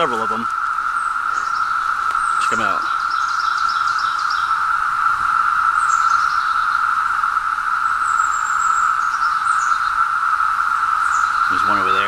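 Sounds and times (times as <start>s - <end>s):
cicadas droning: 0.0s - 12.0s
high bird chirps: 0.9s - 4.7s, 5.7s - 6.8s.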